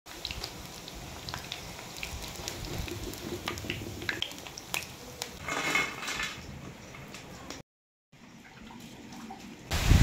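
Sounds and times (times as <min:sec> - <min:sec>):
food deep-frying in oil: 0:00.1 - 0:07.6
small pops and crackles: 0:01.3 - 0:05.4.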